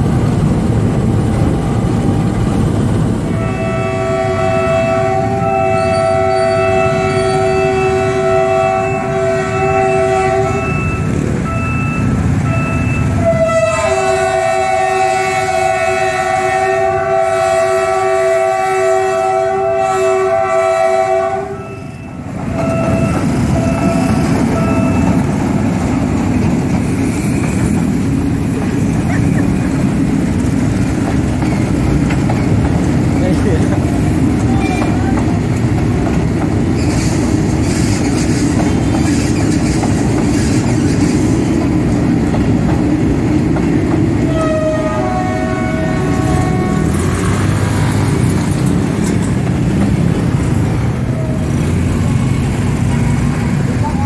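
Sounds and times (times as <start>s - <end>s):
train rumble and wheel clatter: 0.0s - 54.0s
train horn blasts: 3.3s - 25.2s, 44.2s - 48.2s.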